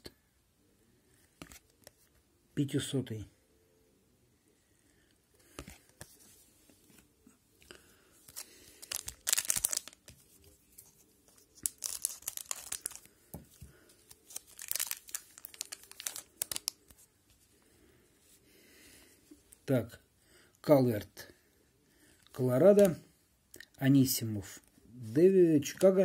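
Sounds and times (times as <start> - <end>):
wrapper tearing and crinkling: 8.3 - 10.2, 11.4 - 13.1, 14.1 - 16.9.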